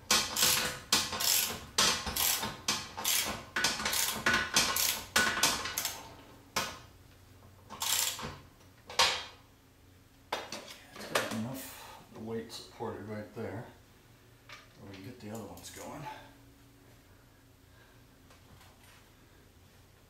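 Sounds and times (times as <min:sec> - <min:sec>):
ratchet wrench clicking: 0:00.1 - 0:06.0, 0:07.8 - 0:08.2.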